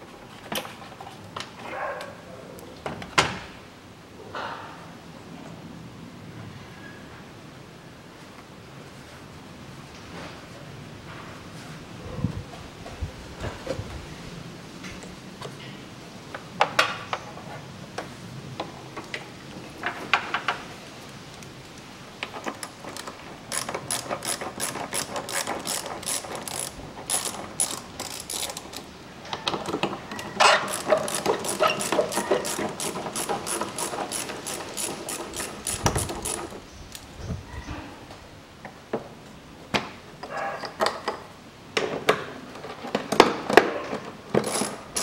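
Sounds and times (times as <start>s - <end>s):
socket ratchet clicking: 22.5s - 28.9s, 30.6s - 37.1s, 44.4s - 45.0s.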